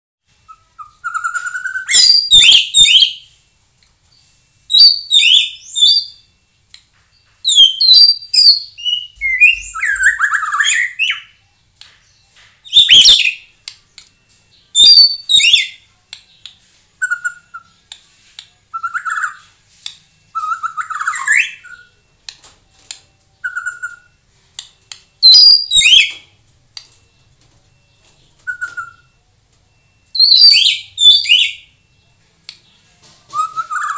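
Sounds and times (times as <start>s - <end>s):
bird singing whistles and chatter: 0.4s - 3.3s, 4.7s - 6.3s, 7.3s - 11.4s, 12.0s - 13.6s, 14.5s - 17.9s, 18.5s - 19.6s, 20.3s - 22.0s, 23.4s - 24.2s, 25.2s - 26.3s, 27.8s - 32.0s, 33.2s - 33.9s.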